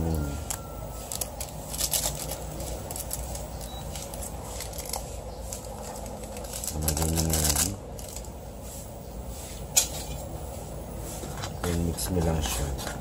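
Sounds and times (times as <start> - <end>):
seasoning packet rustling: 0.3 - 8.9.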